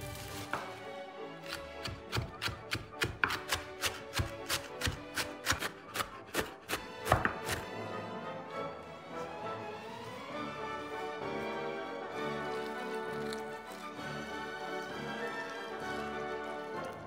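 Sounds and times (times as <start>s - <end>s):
knife chopping on cutting board: 1.4s - 7.6s.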